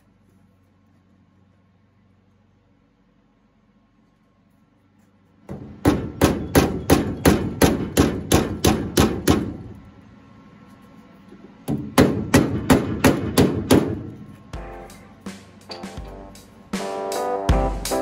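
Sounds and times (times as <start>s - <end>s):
hammer tapping on sheet steel: 5.5s - 9.8s, 11.6s - 15.0s.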